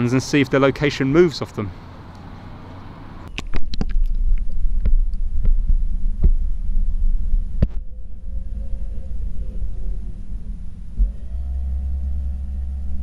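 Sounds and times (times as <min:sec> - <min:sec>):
faint wavering hum: 0:04.0 - 0:13.0.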